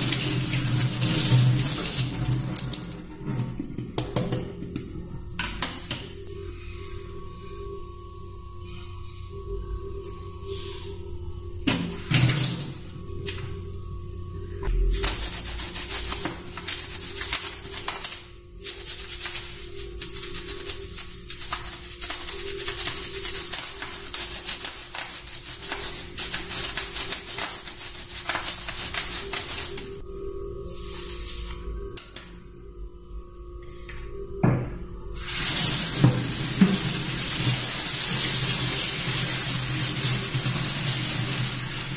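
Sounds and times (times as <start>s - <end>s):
toothbrush scrubbing a keyboard: 18.7s - 29.8s.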